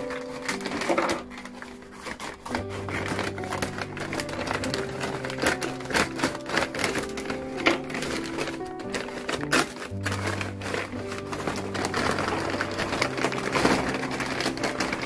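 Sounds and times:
background music with held notes: 0:00.0 - 0:15.0
paper crinkling and rustling: 0:00.0 - 0:15.0
scissors snipping: 0:02.0 - 0:10.5.

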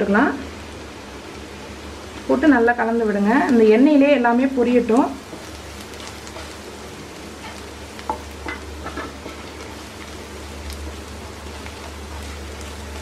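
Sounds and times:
garlic and onion sizzling in oil: 0:00.0 - 0:13.0
spatula scraping and tapping pan: 0:05.3 - 0:06.6, 0:07.4 - 0:10.1.

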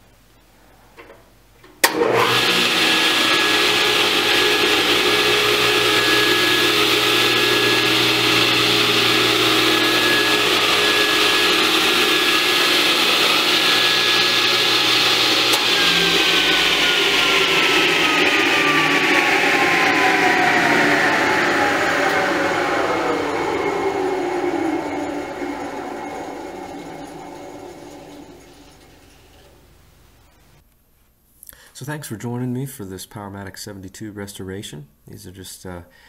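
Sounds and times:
table saw running: 0:01.8 - 0:29.7.

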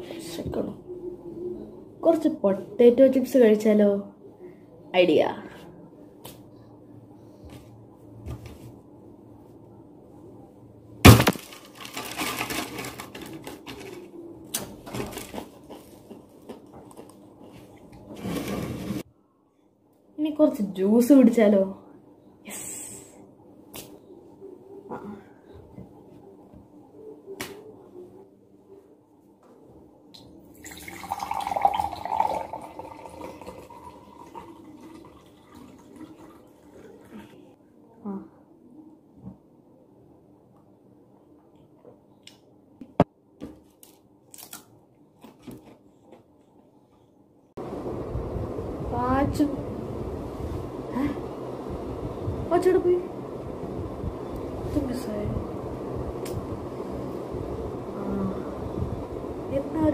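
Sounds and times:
potato chips crackling and rustling: 0:11.1 - 0:14.1
juice pouring into a glass: 0:30.5 - 0:37.3.

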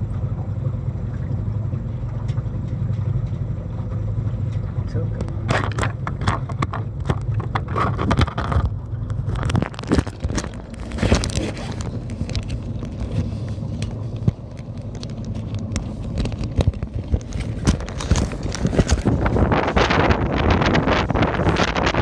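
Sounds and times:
wind buffeting microphone: 0:04.7 - 0:22.0.

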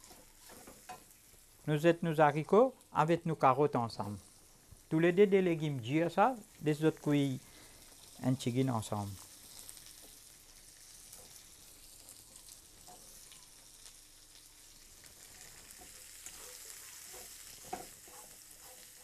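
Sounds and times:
spatula scraping and tapping: 0:00.0 - 0:01.1, 0:15.6 - 0:19.0
vegetables sizzling in oil: 0:00.0 - 0:19.0.

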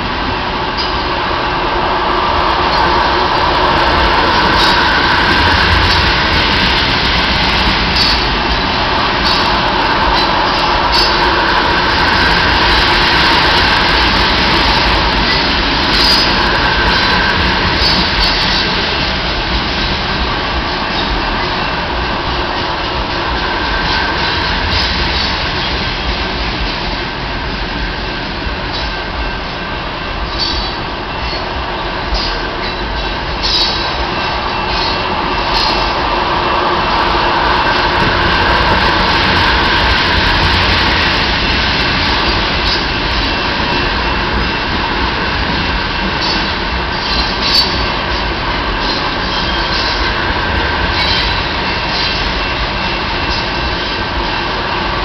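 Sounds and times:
train wheels rumbling on rails: 0:00.0 - 0:55.0
wheel squeals: 0:03.7 - 0:19.0, 0:30.3 - 0:31.5, 0:32.1 - 0:36.0, 0:46.1 - 0:50.2.

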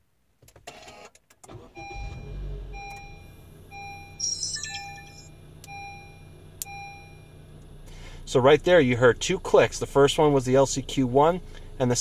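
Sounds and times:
car engine starting rumble: 0:01.5 - 0:04.2, 0:05.3 - 0:12.0.

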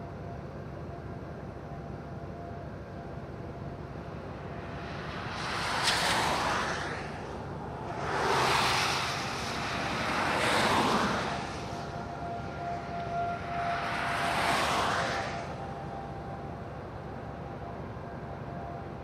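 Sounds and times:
cars passing on wet road: 0:04.0 - 0:16.7.

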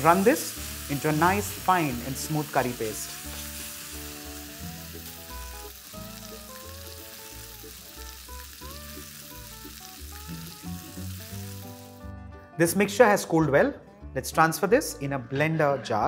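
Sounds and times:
curry paste sizzling in oil: 0:00.0 - 0:12.1
soft background music: 0:00.0 - 0:16.0.

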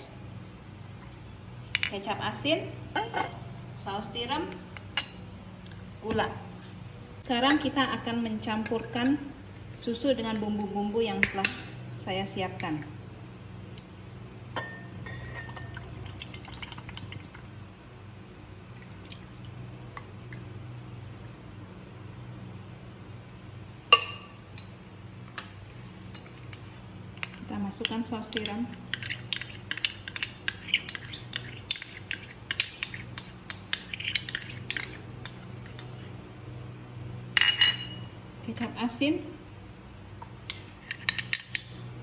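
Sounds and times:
steady low hum: 0:00.0 - 0:42.0
spoon scraping in ceramic cup: 0:27.2 - 0:36.2.

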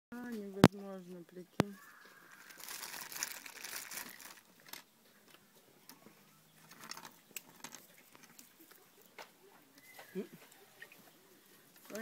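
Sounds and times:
leaves rustling: 0:01.7 - 0:04.9
plastic bag crinkling: 0:02.3 - 0:04.9, 0:06.7 - 0:08.5.

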